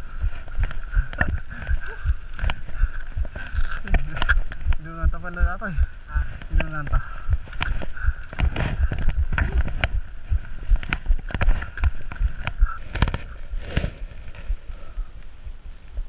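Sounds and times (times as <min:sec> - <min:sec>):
low thumps: 0:00.0 - 0:16.0
steady high whir: 0:00.0 - 0:16.0.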